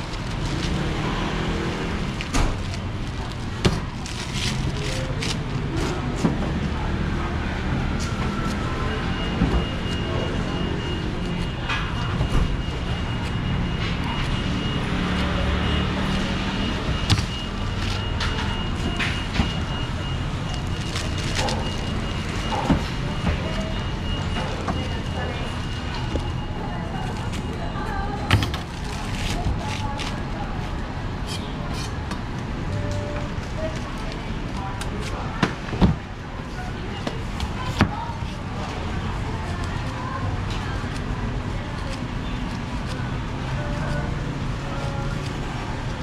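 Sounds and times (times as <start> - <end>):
faint voices: 0.0 - 46.0
market background rumble: 0.0 - 46.0.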